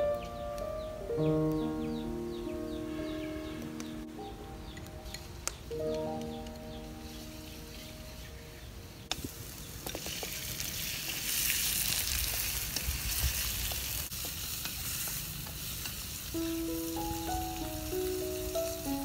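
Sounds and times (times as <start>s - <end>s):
meat sizzling in hot oil: 9.2s - 19.0s.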